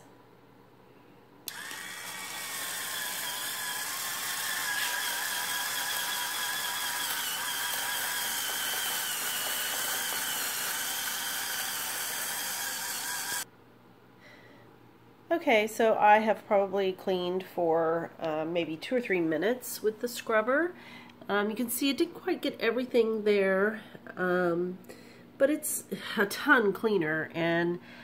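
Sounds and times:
spin scrubber motor whining: 1.5 - 13.4.

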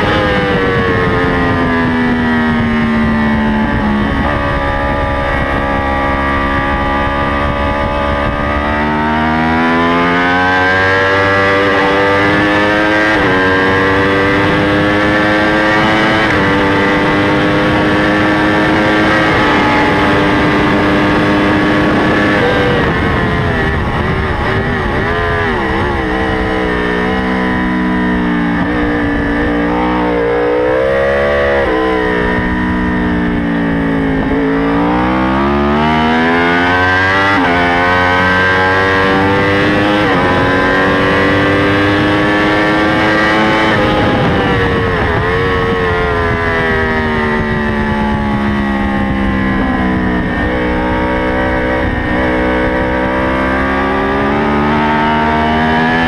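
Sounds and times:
sport bike engine revving: 0.0 - 56.0
wind rush: 0.0 - 56.0.

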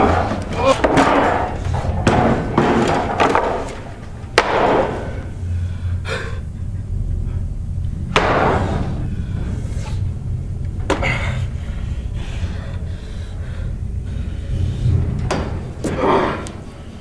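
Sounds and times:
low steady hum: 0.0 - 17.0
loud slams and thuds: 8.1 - 9.1.

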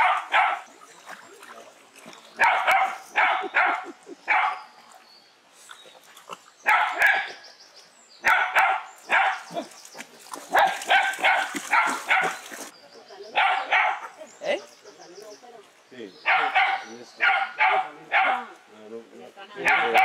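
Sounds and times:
dog barking: 0.0 - 0.7, 2.4 - 4.6, 6.6 - 7.4, 8.2 - 9.6, 10.5 - 12.4, 13.3 - 14.1, 16.2 - 18.6, 19.6 - 20.0.

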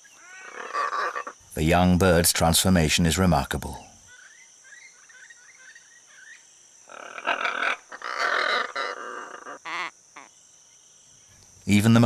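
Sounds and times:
macaws squawking: 0.0 - 1.4, 6.9 - 10.3.

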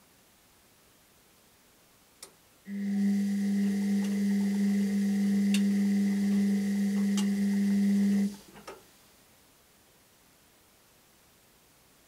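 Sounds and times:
washing machine humming: 2.7 - 8.5.

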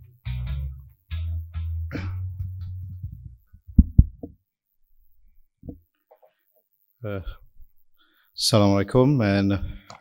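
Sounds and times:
music with heavy low bass: 0.0 - 4.0.

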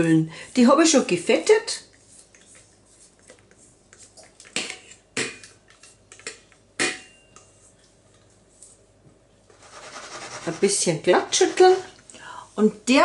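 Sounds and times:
batter being scraped out of bowl: 9.5 - 12.0
metal mixing bowl clanking: 10.0 - 12.0.

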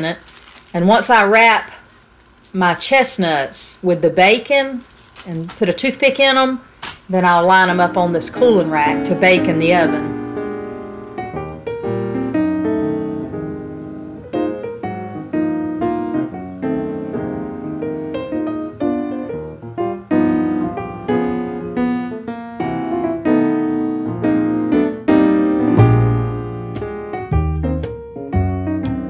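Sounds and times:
piano music: 7.1 - 29.0.

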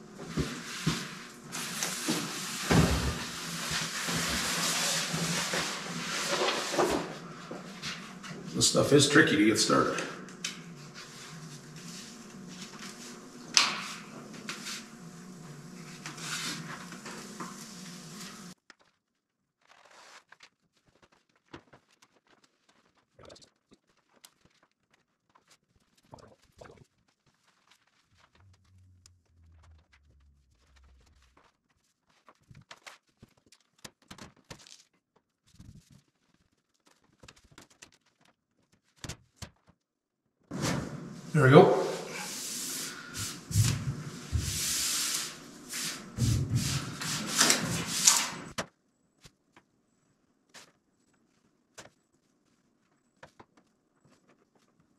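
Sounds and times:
sheet rustling and crinkling: 0.0 - 8.5, 15.8 - 39.8, 50.4 - 54.9
sharp crackle: 18.7 - 38.3
steady low hum: 40.6 - 48.5.

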